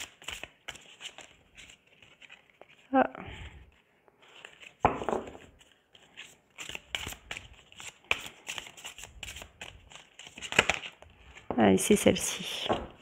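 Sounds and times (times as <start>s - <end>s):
cards being shuffled: 0.0s - 2.9s, 4.2s - 11.5s.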